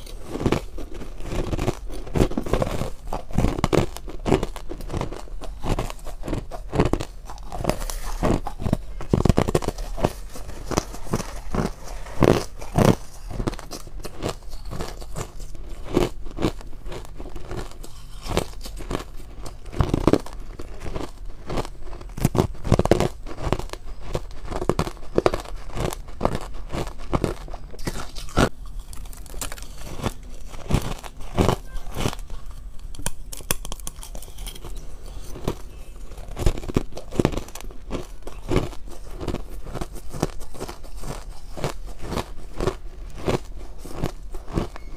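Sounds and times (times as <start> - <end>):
crunchy ice chewing: 0.0 - 44.9.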